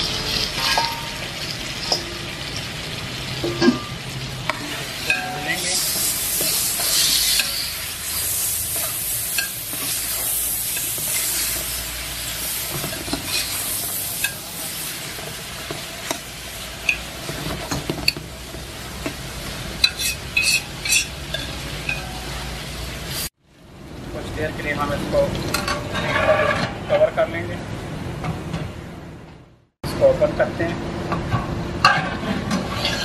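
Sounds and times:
metal ladle scraping pot: 0:00.0 - 0:02.2, 0:19.8 - 0:22.1, 0:25.5 - 0:27.0, 0:31.9 - 0:33.0
meat sizzling in pot: 0:00.0 - 0:23.4.

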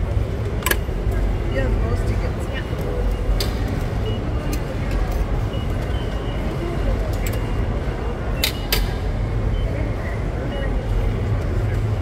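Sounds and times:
faint high touchscreen beeps: 0:05.4 - 0:08.7.

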